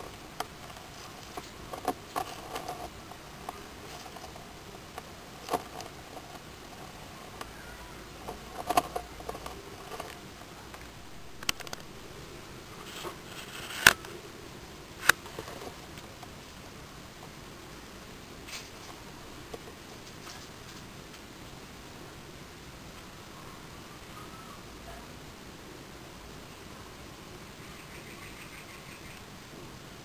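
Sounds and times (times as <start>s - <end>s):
crab shells clicking and tapping: 11.4s - 11.9s
legs scraping gravel: 12.8s - 14.0s.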